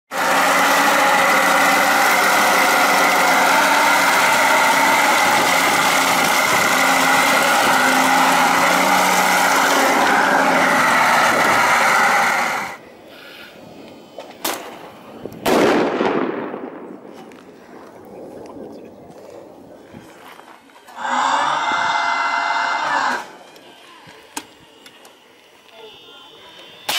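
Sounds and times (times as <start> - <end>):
model tank motor drone: 0.1 - 13.1, 20.8 - 26.9
firecracker bang: 14.4 - 17.2.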